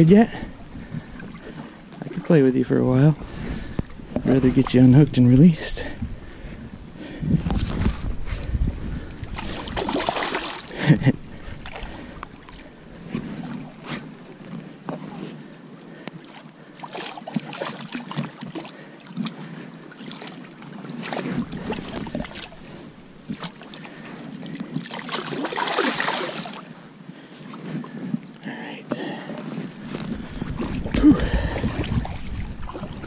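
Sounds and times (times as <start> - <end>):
fish thrashing in water: 9.2 - 14.4, 21.0 - 26.8.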